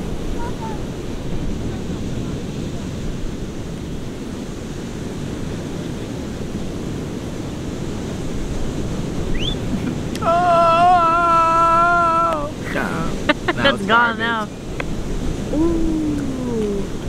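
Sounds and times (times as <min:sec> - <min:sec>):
breaking surf: 0:00.0 - 0:17.0
wind on microphone: 0:00.0 - 0:17.0
person holding long note: 0:10.2 - 0:14.1.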